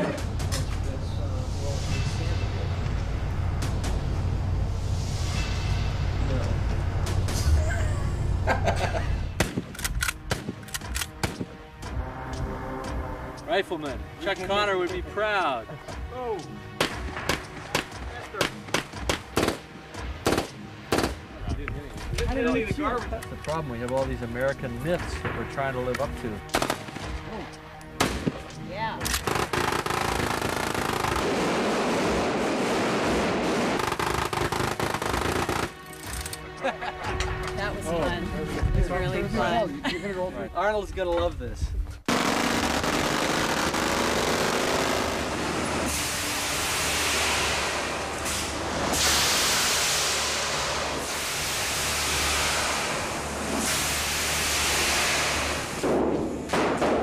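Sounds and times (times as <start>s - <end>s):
automatic gunfire: 18.7s - 19.6s, 29.2s - 35.8s, 42.1s - 45.3s
loud rushing noise: 29.3s - 35.6s, 43.4s - 56.5s.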